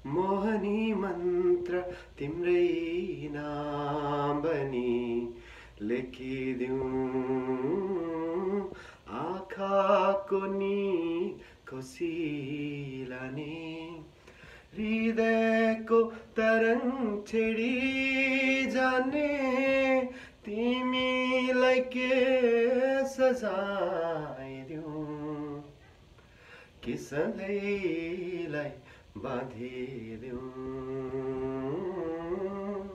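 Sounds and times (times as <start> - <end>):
man singing unaccompanied: 0.0 - 25.8, 26.8 - 32.9.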